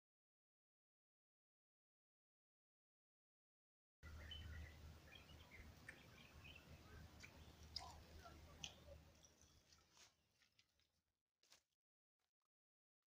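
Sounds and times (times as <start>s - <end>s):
faint bird chirps: 4.0s - 10.1s.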